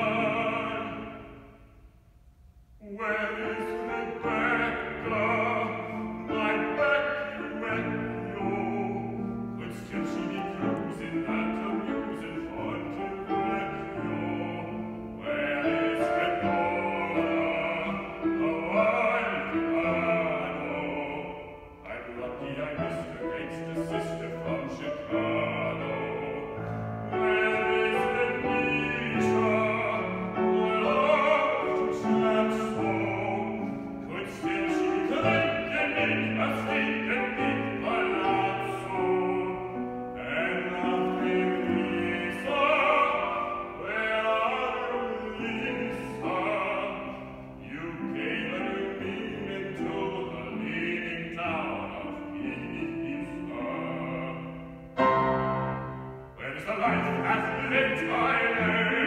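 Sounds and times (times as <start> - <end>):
man singing show tune: 0.0 - 1.5, 2.8 - 55.6, 56.3 - 59.0
grand piano accompaniment: 0.0 - 2.0, 2.6 - 59.0.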